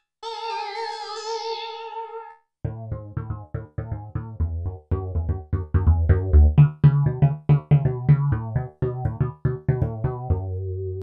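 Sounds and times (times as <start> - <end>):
synthesizer staccato bass notes: 2.6 - 11.0.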